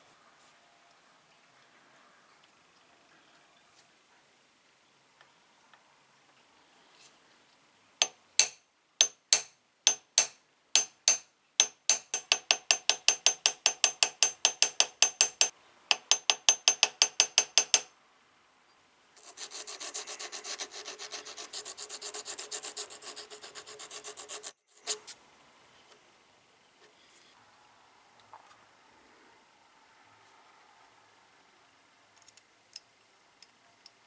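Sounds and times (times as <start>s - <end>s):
hand file rasping on metal: 19.2s - 25.1s.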